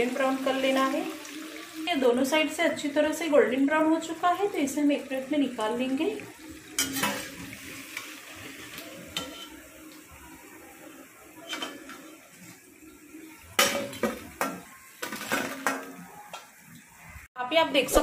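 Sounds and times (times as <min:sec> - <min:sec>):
food frying in hot oil: 0:00.0 - 0:17.3
metal spoon clinking on pan: 0:09.2 - 0:09.6.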